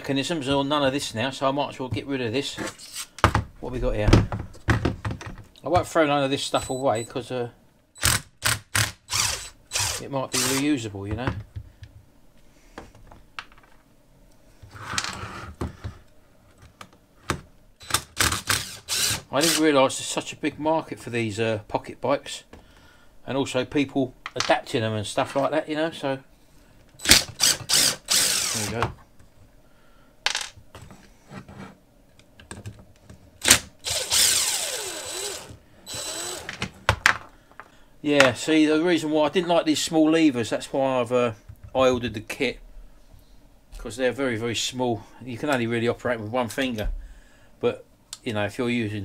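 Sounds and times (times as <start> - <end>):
cordless drill whirring: 8.0 - 10.6, 17.8 - 19.6, 27.0 - 28.7, 33.4 - 36.5
scrape on workbench: 14.6 - 16.0, 31.0 - 31.8.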